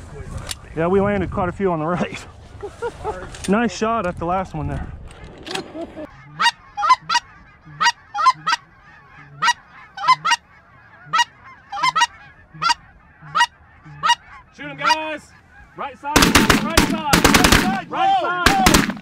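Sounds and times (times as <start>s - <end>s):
goose honking: 6.0s - 16.0s.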